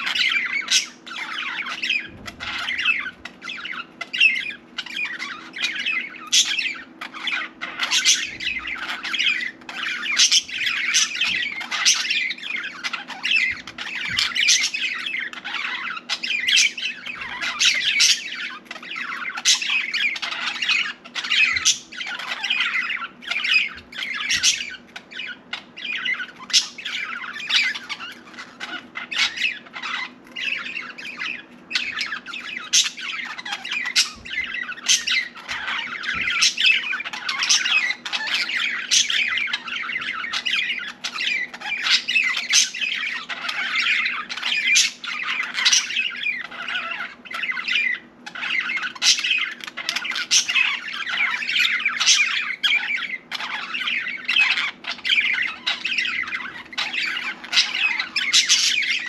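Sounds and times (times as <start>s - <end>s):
budgerigar chattering and warbling: 0.0s - 59.0s.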